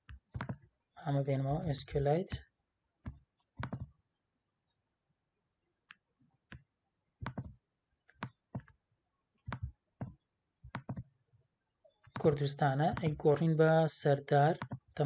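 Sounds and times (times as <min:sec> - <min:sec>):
computer mouse buttons clicking: 0:03.1 - 0:03.9, 0:07.2 - 0:08.8, 0:09.4 - 0:11.1.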